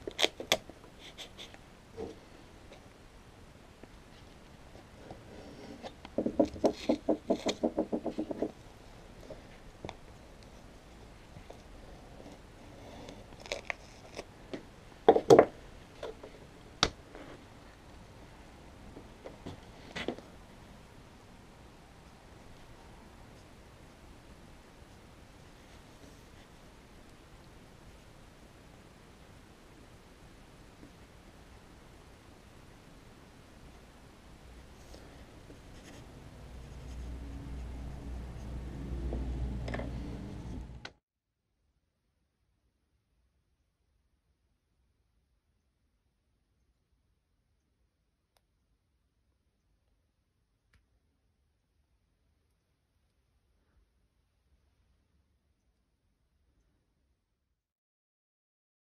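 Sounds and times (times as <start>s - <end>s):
low rumble: 36.1s - 40.9s.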